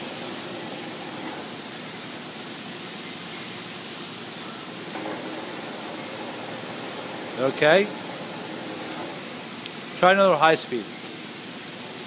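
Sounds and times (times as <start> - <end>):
headstock gears turning: 0.0 - 2.1, 4.7 - 12.0
lathe running steadily: 0.0 - 12.0.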